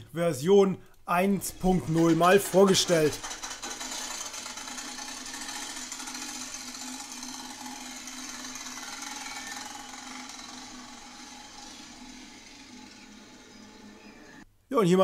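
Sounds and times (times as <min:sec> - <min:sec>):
cards rattling against bicycle spokes: 0:01.7 - 0:12.2.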